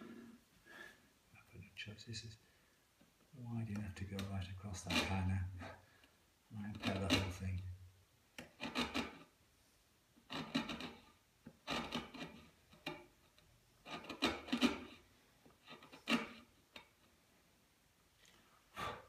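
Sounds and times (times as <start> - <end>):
chisel scraping wood: 3.7 - 5.8, 6.6 - 7.6, 8.4 - 9.4, 10.2 - 17.0.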